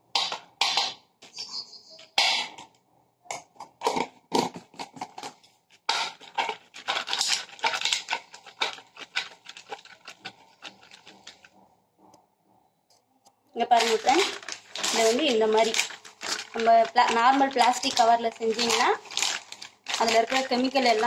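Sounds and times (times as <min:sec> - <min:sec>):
plastic pouch crinkling: 0:04.6 - 0:11.5, 0:13.7 - 0:21.0.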